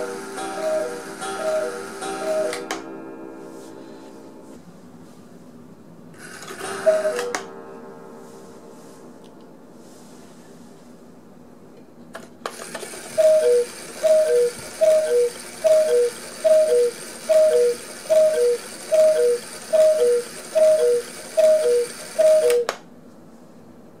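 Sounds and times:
cuckoo clock calling: 0.0s - 3.2s, 6.2s - 7.6s, 12.5s - 22.8s
clock striking train whirring: 0.0s - 3.5s, 6.2s - 7.9s, 12.5s - 22.8s.

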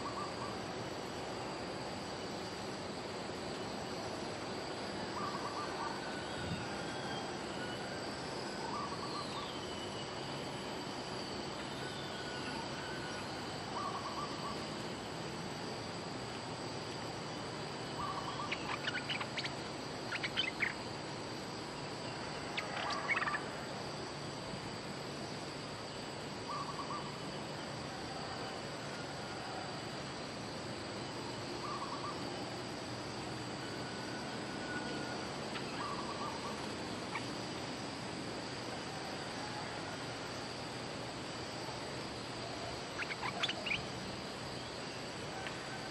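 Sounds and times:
high insect drone: 0.0s - 45.9s.

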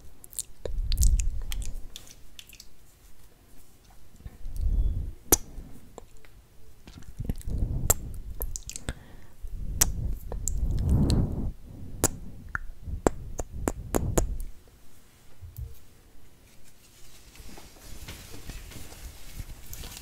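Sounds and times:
mouth clicks: 0.3s - 2.7s, 5.3s - 6.3s, 6.9s - 9.0s, 9.7s - 14.6s
wet lip smacks: 0.3s - 2.7s, 6.9s - 9.0s, 9.7s - 11.3s, 12.0s - 14.5s
soft low swells: 7.0s - 15.8s.

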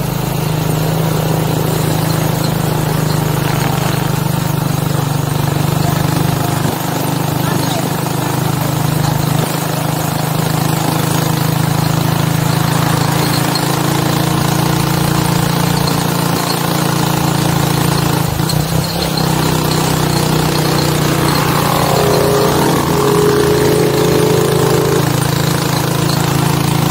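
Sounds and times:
motorcycle engine running: 0.0s - 26.9s
high steady whine: 19.0s - 26.6s.

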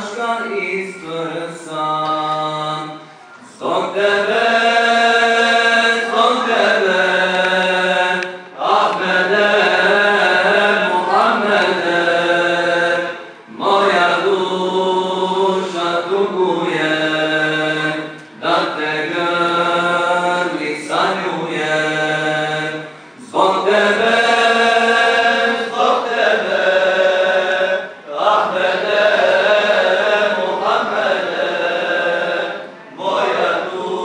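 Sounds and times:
men chanting a hymn: 0.0s - 34.0s.

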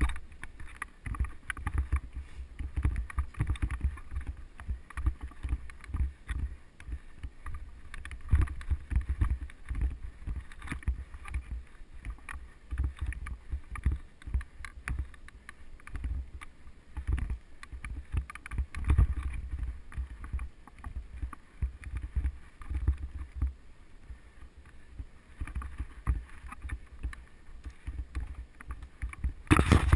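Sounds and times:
bike rattling over bumps: 0.0s - 23.6s, 24.9s - 29.9s
tyres rolling over dirt: 29.4s - 29.9s.

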